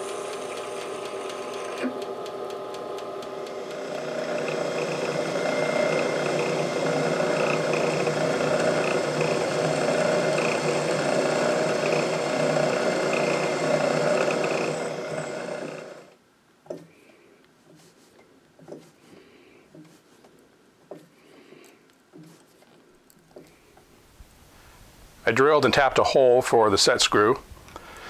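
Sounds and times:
lathe running: 0:00.0 - 0:16.2
drill press whirring: 0:00.0 - 0:16.9.

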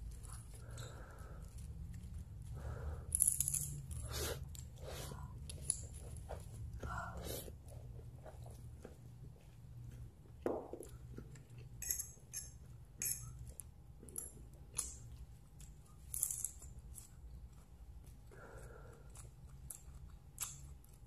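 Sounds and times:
lettuce crunching while chewed: 0:16.7 - 0:21.0.

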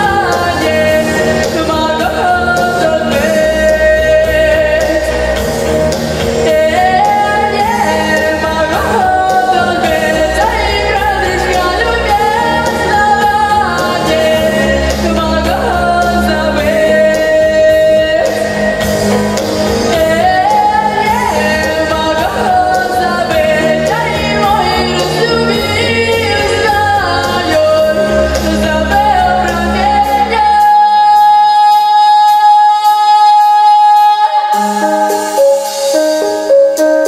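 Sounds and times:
pop backing track with bass: 0:00.0 - 0:37.0
girl singing into microphone: 0:19.9 - 0:35.4.

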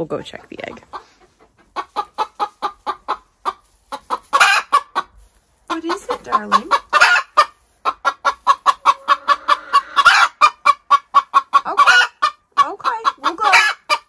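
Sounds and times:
hen cackling: 0:00.9 - 0:05.1, 0:05.7 - 0:14.0
hen squawking: 0:05.7 - 0:13.8.

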